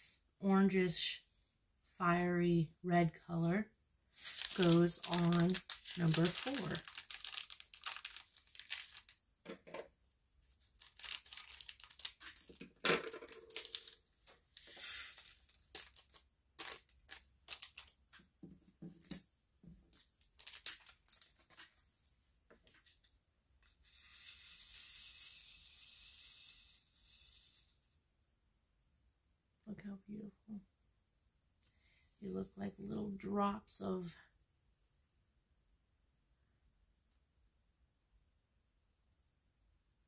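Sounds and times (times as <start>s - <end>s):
plastic bag handled and opened: 4.1s - 9.2s, 10.5s - 23.1s
rhinestones rattling in shaken tray: 14.6s - 16.0s, 23.8s - 27.7s.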